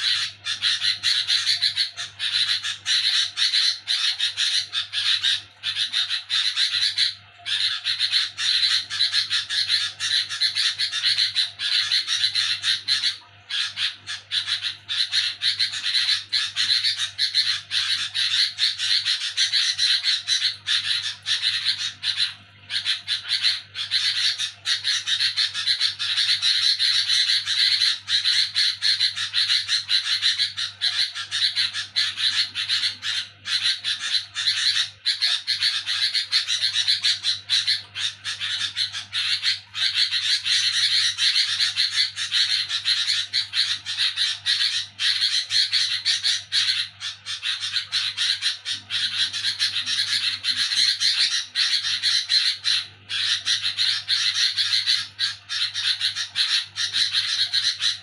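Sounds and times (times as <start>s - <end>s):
bird harsh chatter: 0.0s - 58.0s.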